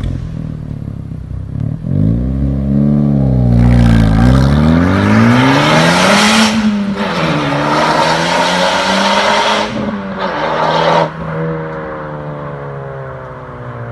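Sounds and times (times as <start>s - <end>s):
car engine accelerating away: 1.5s - 12.6s.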